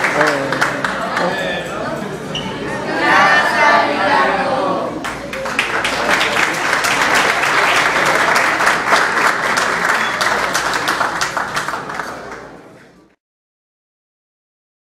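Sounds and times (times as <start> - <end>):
audience applauding: 0.0 - 1.6, 5.0 - 12.9.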